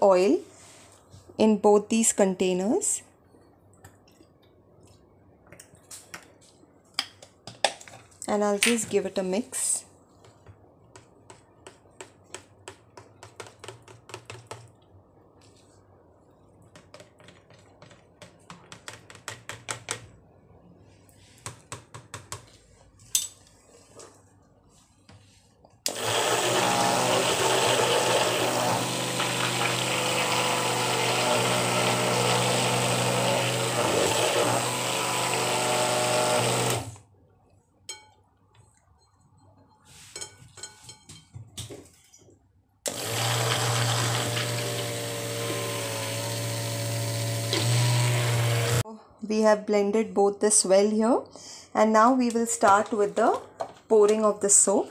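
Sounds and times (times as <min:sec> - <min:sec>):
stick blender running: 0:25.9 - 0:37.0, 0:42.9 - 0:48.8.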